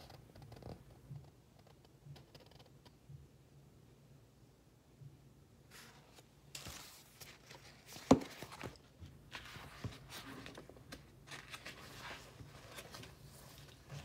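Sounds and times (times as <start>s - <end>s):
book pages rustling: 5.7s - 14.0s.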